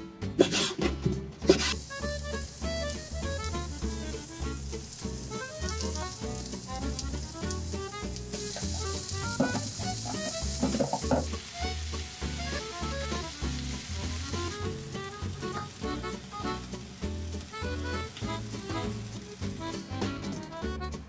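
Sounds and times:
music with bass beat: 0:00.0 - 0:21.0
food sizzling in a pan: 0:01.5 - 0:19.9
stirring clatter: 0:08.3 - 0:11.4.

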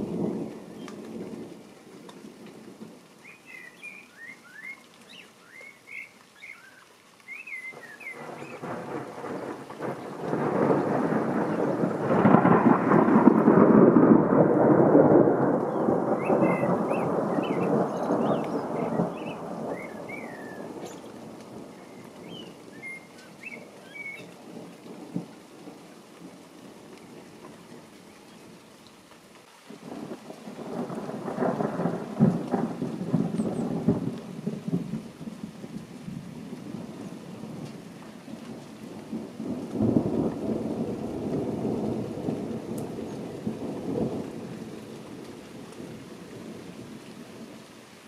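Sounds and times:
rain falling: 0:00.0 - 0:48.0
thunder rumble: 0:07.7 - 0:23.0, 0:29.8 - 0:47.5.

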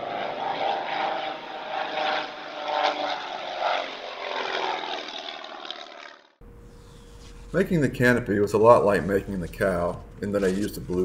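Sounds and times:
propeller aeroplane engine running: 0:00.0 - 0:06.6.

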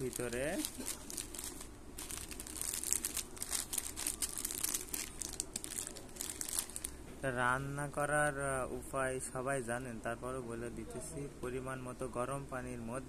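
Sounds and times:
plastic packet crinkling: 0:00.0 - 0:07.0.

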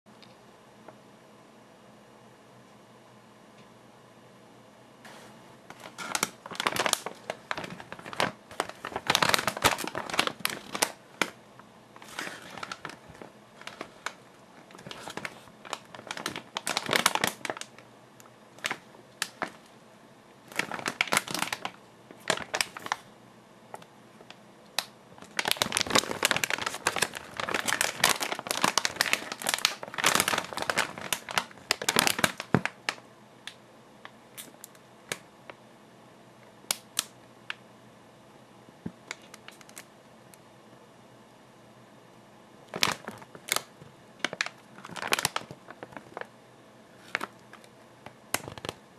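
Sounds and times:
plastic snack bag crinkling: 0:05.1 - 0:11.4, 0:12.0 - 0:17.9, 0:18.6 - 0:19.7, 0:20.4 - 0:23.1, 0:23.7 - 0:33.0, 0:39.0 - 0:39.9, 0:42.7 - 0:46.3, 0:46.9 - 0:48.8.

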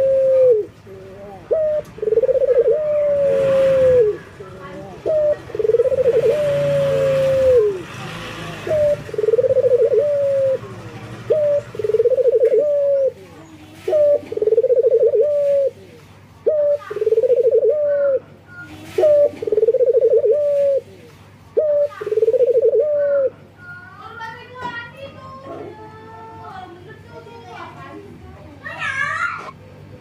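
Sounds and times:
dove cooing: 0:00.0 - 0:07.8, 0:08.6 - 0:23.6.

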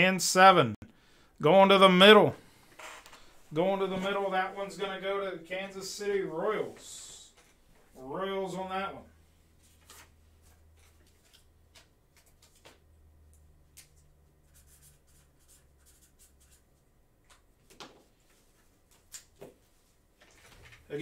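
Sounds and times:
handling cards on a table: 0:09.6 - 0:20.9.

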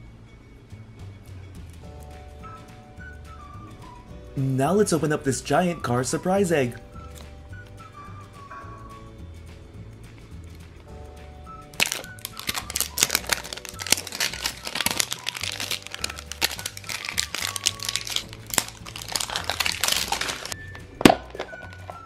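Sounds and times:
background music: 0:00.0 - 0:22.0
plastic wrap crinkling: 0:11.8 - 0:22.0.

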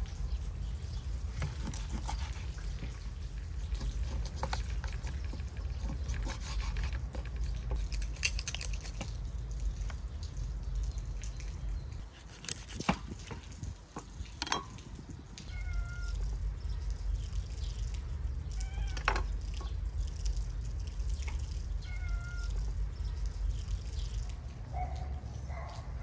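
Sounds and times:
low steady rumble: 0:00.0 - 0:26.0
knife cutting on wooden board: 0:01.4 - 0:02.6, 0:03.7 - 0:07.2, 0:12.1 - 0:13.4
cat meowing: 0:15.4 - 0:16.3, 0:18.6 - 0:19.1, 0:21.8 - 0:22.6.

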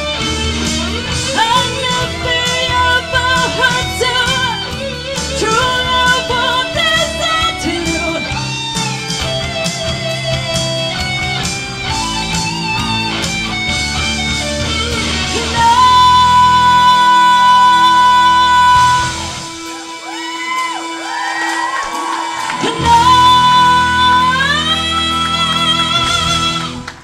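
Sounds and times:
live rock band: 0:00.0 - 0:27.0
woman singing lead vocal: 0:01.2 - 0:08.5, 0:15.3 - 0:19.3, 0:22.4 - 0:26.8.

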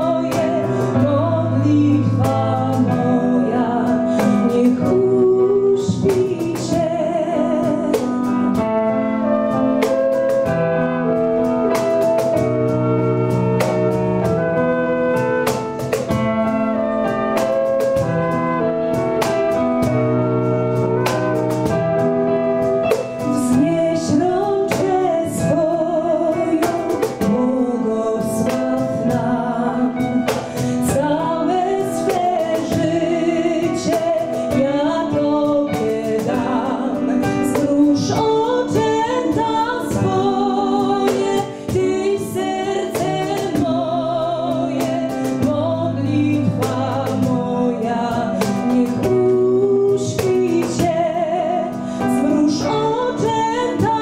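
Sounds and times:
woman singing with vibrato: 0:00.0 - 0:10.4, 0:22.2 - 0:54.0
small band playing: 0:00.0 - 0:54.0
cajon beats: 0:05.8 - 0:54.0.

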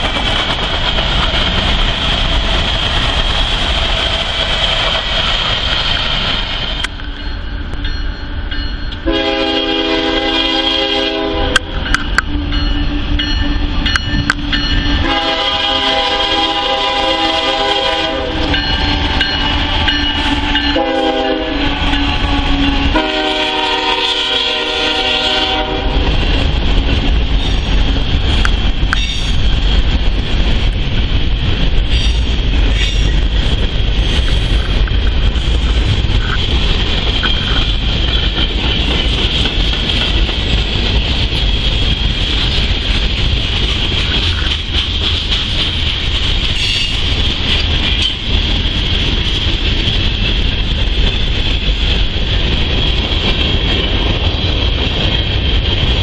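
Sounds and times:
train wheels clattering on rail: 0:00.0 - 0:56.0
locomotive horn: 0:09.0 - 0:11.9, 0:15.0 - 0:26.1.

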